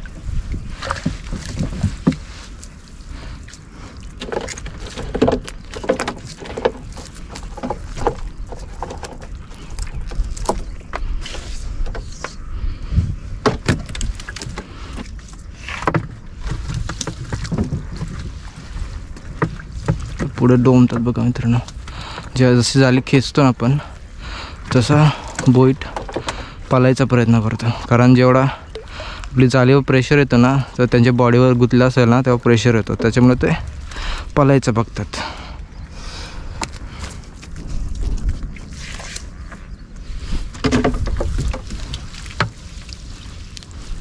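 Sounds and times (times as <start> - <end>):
wet watery handling sounds: 0.0 - 12.6, 13.2 - 44.0
net hauled into boat knocking: 4.2 - 11.0, 40.5 - 42.6.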